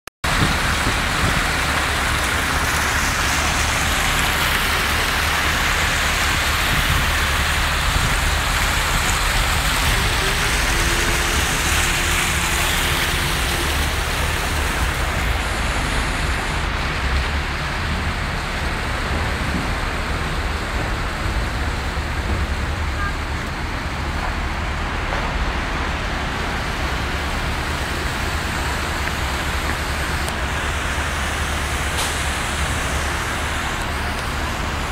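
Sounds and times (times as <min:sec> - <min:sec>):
fountain water splashing: 0:00.2 - 0:34.9.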